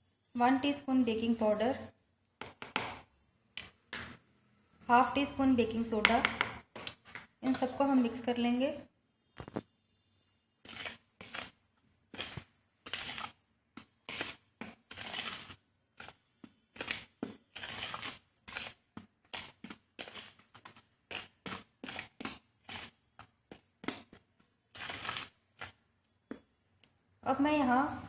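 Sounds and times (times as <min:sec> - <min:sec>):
plastic spoon scraping bowl: 0:10.6 - 0:26.4.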